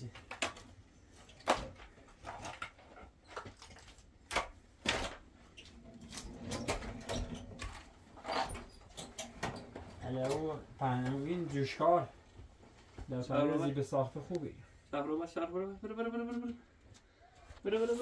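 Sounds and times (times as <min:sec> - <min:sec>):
knocks and clatter of handling: 0:00.0 - 0:11.5.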